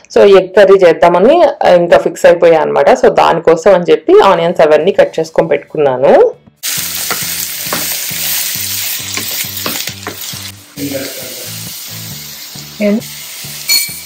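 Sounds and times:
onions sizzling in a pan: 6.6 - 14.0.

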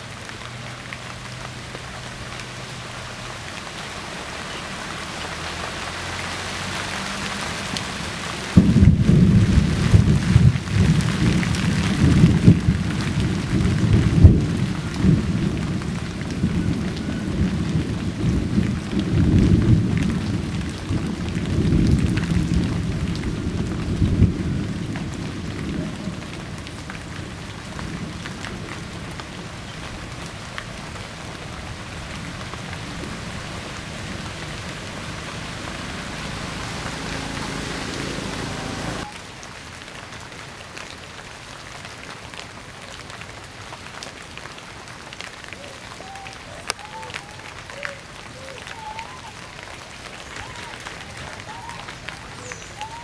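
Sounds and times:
rain falling: 0.0 - 53.0
heavy low rumbling: 32.7 - 39.0.

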